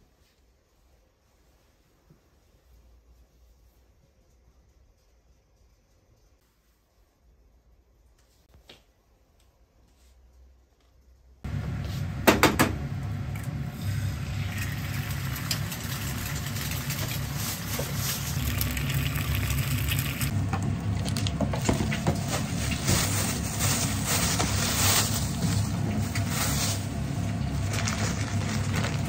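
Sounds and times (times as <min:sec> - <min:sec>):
egg sizzling in a pan: 0:13.7 - 0:20.3
plastic bag crinkling: 0:15.6 - 0:19.4, 0:21.0 - 0:29.0.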